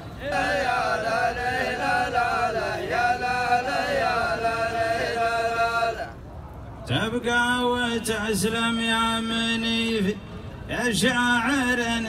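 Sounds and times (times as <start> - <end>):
men chanting in unison: 0.0 - 6.2.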